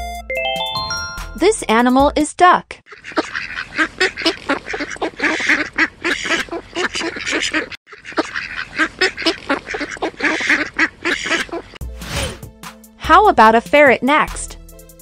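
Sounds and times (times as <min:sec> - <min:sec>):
ducks quacking: 0:02.9 - 0:11.8.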